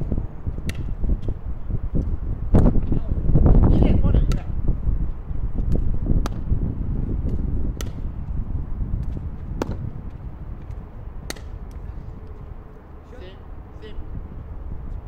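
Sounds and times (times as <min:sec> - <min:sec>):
steady low rumble: 0:00.0 - 0:15.0
paddle striking ball: 0:00.6 - 0:00.9, 0:07.3 - 0:08.1, 0:09.0 - 0:09.9, 0:10.6 - 0:11.8.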